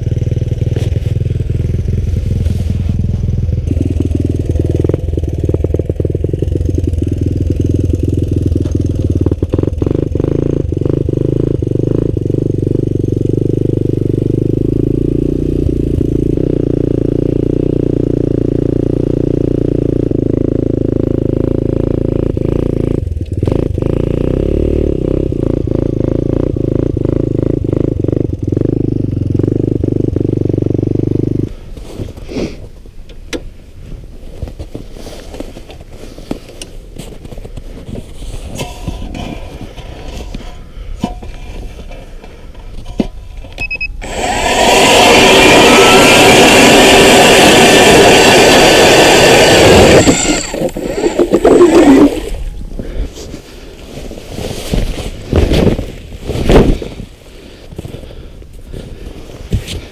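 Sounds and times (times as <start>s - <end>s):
snowmobile engine running: 0.0s - 24.4s, 44.0s - 59.9s
scraping and clattering: 34.4s - 43.6s.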